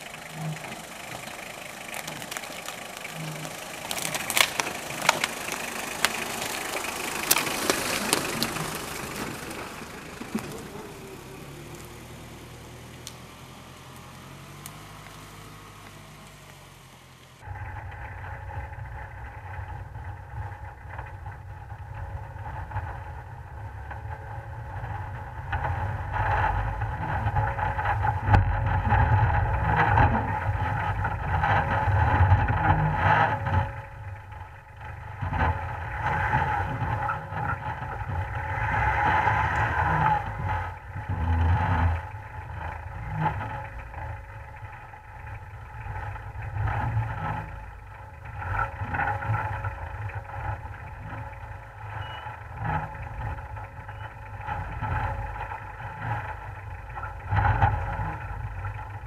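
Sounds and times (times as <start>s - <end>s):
car engine under load: 0.0s - 59.0s
knocks and clatter from bumps: 17.4s - 59.0s.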